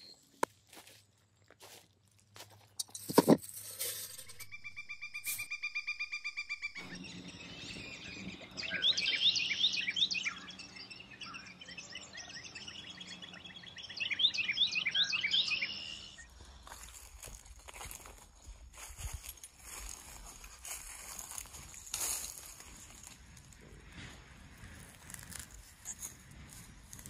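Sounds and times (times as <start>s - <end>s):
birds chirping: 0.0s - 0.4s, 4.0s - 18.2s.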